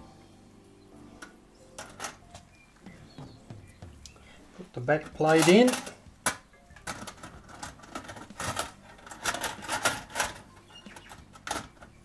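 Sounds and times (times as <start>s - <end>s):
metal clock parts clinking in wire basket: 5.0s - 6.0s.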